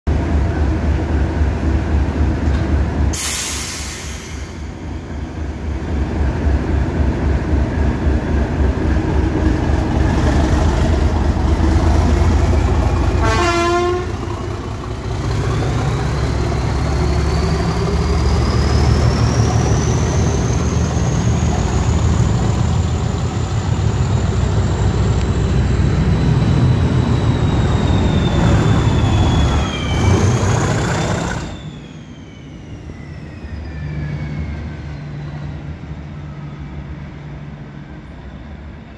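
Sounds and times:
diesel locomotive engine rumble: 0:00.1 - 0:38.9
loud hiss: 0:03.2 - 0:04.9.

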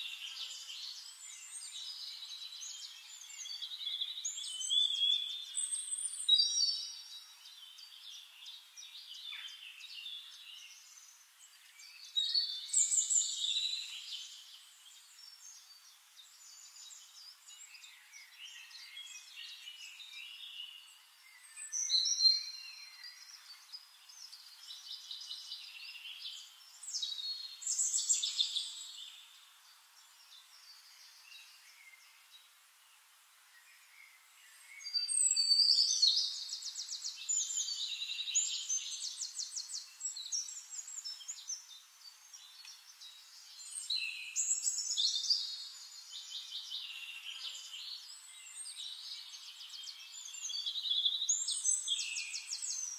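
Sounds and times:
songbirds chirping and trilling: 0:00.0 - 0:52.9.

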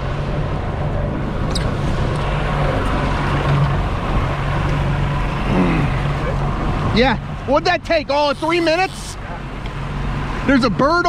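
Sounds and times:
outboard motor running: 0:00.2 - 0:11.0.

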